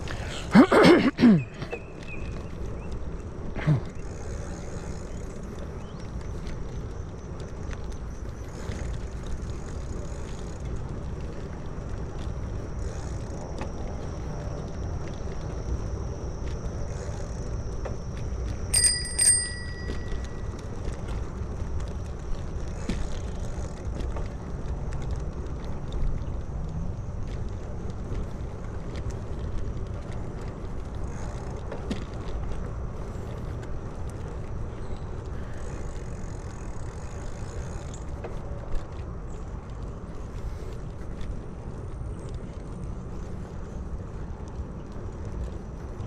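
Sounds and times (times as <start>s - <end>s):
wind and road rumble: 0.0s - 46.0s
bicycle bell ringing: 18.7s - 20.6s.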